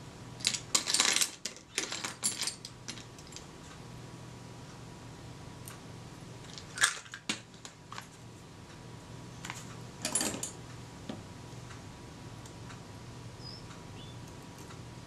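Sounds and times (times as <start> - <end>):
low steady hum: 0.0 - 15.0
small tools clicking and clattering: 0.4 - 3.5, 9.4 - 10.6.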